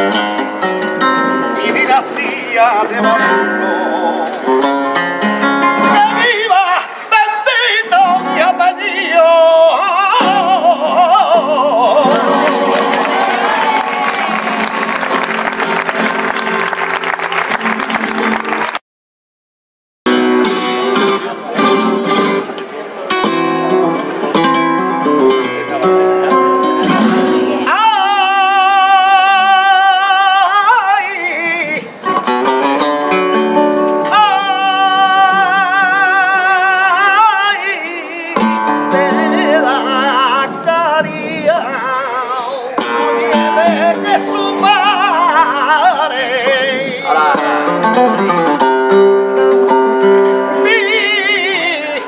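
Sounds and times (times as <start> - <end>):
man singing flamenco: 0.0 - 13.5, 24.4 - 52.0
flamenco guitar plucked notes: 0.0 - 18.7, 20.1 - 52.0.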